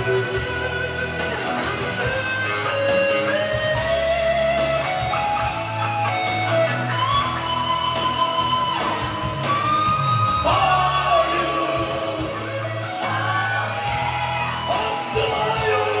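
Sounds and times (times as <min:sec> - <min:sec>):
pop backing track over loudspeaker: 0:00.0 - 0:16.0.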